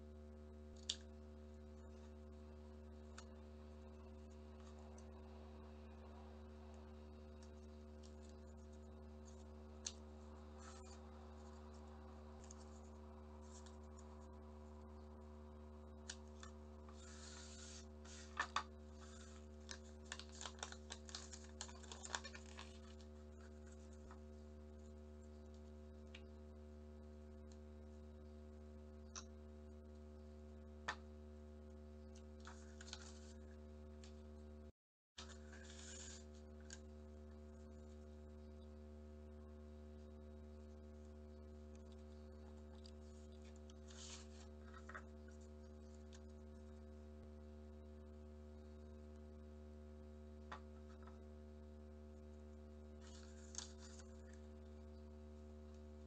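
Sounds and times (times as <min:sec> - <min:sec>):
low electrical hum: 0:00.0 - 0:56.0
paper crackling while folded: 0:07.3 - 0:14.2, 0:16.1 - 0:24.2, 0:32.4 - 0:33.4, 0:35.2 - 0:36.9, 0:42.5 - 0:46.3, 0:53.0 - 0:54.4.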